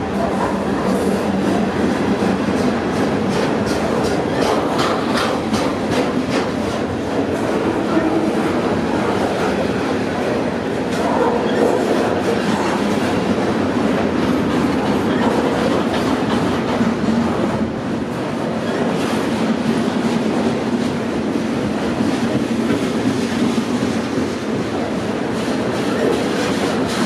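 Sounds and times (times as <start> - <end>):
steel wheels rumbling on rail: 0.0 - 27.0.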